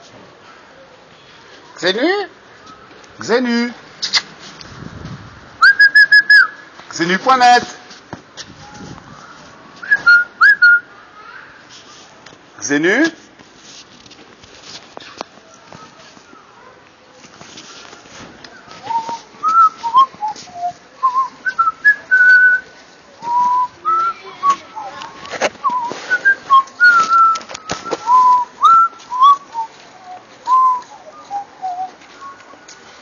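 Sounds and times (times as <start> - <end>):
person whistling a tune: 9.8 - 10.8, 25.7 - 29.7.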